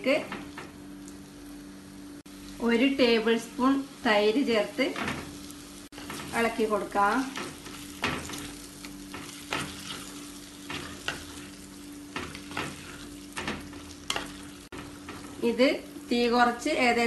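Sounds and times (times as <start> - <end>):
food sizzling in pot: 0.4 - 16.7
spatula scraping pot: 7.2 - 11.6, 12.2 - 15.4.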